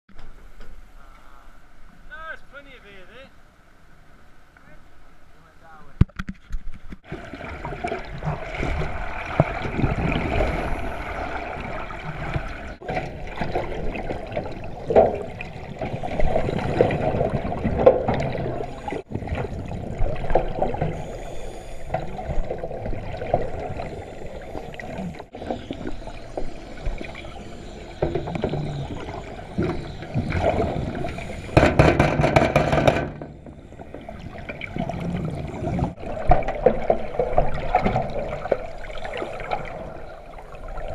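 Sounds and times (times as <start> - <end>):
sea water sloshing and gurgling: 6.2 - 40.9.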